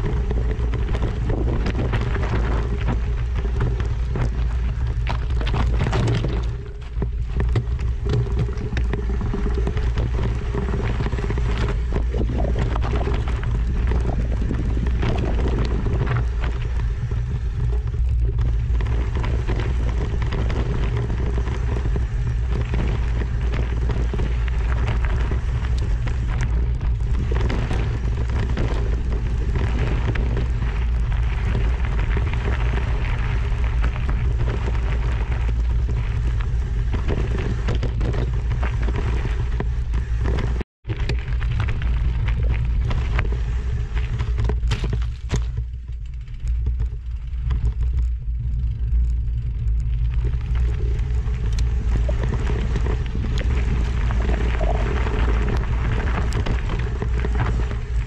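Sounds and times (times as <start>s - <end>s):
road and wind noise: 0.0s - 58.0s
vehicle engine drone: 0.0s - 58.0s.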